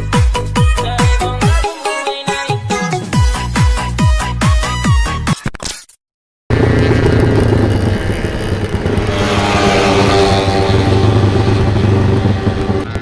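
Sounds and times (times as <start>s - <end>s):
motorcycle engine running: 6.5s - 13.0s.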